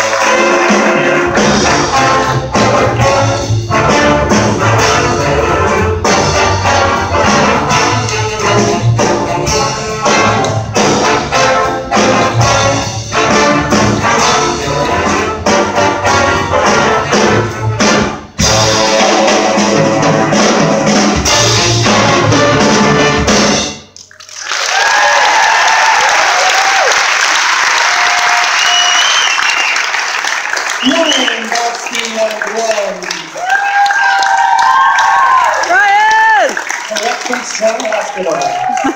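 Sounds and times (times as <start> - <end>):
jazz big band playing: 0.0 - 24.0.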